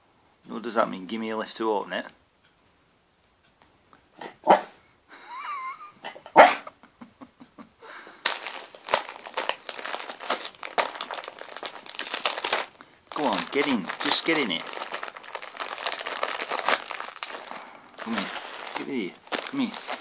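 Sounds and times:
dog barking: 4.2s - 4.8s, 6.3s - 6.7s
wrapping paper crinkling: 8.2s - 20.0s.

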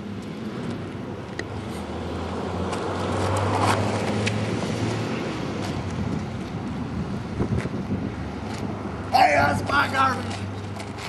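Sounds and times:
car passing: 0.0s - 11.0s
tyre noise: 2.6s - 11.0s.

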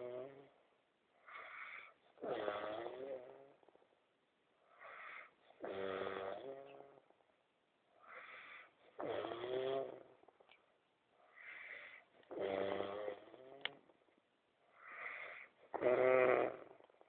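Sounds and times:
man snoring: 1.3s - 3.5s, 4.9s - 7.0s, 8.2s - 10.2s, 11.5s - 13.7s, 14.8s - 16.8s.

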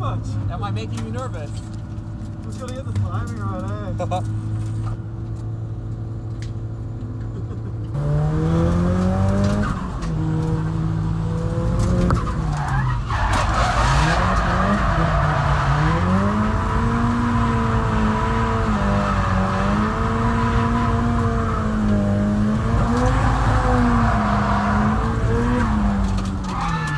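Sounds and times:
car engine revving: 6.3s - 26.9s
tyres skidding and squealing: 7.2s - 26.9s.

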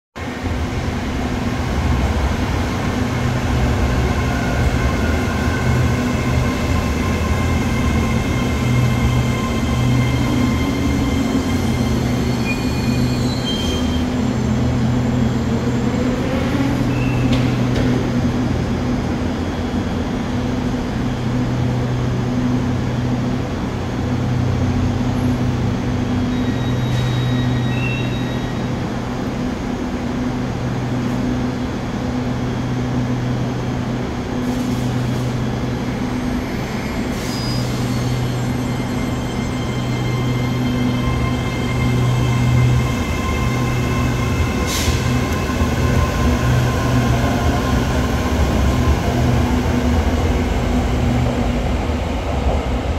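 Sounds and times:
electric train humming: 0.3s - 27.7s, 28.5s - 52.9s
brake whines and squeals: 8.2s - 14.8s, 15.4s - 17.6s, 26.2s - 28.8s, 36.4s - 46.2s.

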